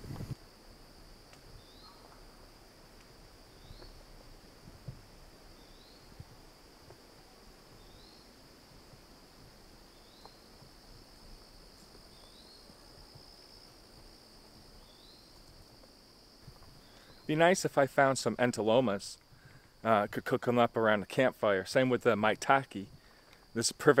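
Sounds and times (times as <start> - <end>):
insect trill: 0.0 - 24.0
soft low thumps: 4.6 - 8.0, 8.7 - 14.2.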